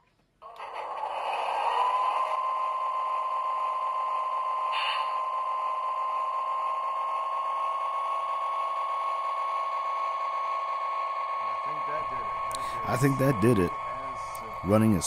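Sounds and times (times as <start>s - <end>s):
model train motor whine: 0.4s - 15.0s.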